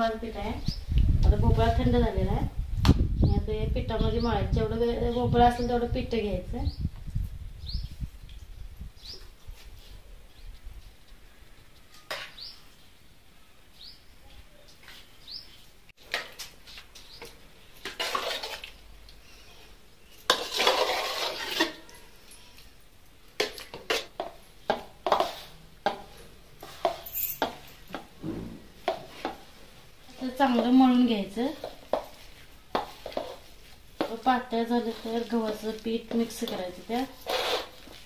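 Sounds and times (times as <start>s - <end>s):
steel spoon scraping a pot: 20.2s - 22.0s, 25.0s - 25.6s, 37.0s - 38.0s.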